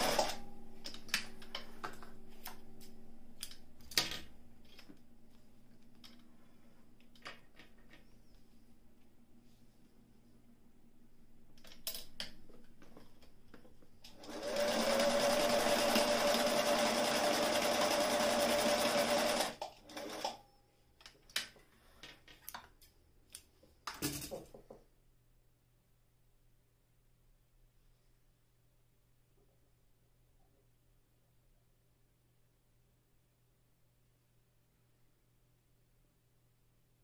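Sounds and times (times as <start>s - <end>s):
sewing machine stitching: 0.0s - 0.4s, 14.1s - 20.4s.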